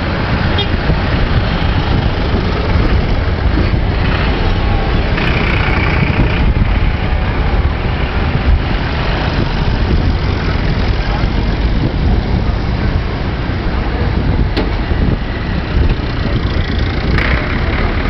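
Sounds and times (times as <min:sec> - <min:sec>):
tractor engines driving past: 0:00.0 - 0:18.0
wind rumbling on microphone: 0:00.0 - 0:18.0.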